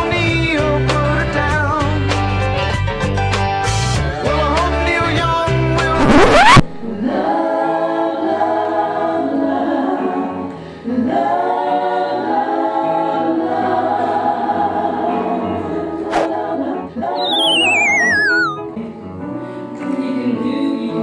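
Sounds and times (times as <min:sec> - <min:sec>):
choir singing held chords: 0:06.9 - 0:08.4.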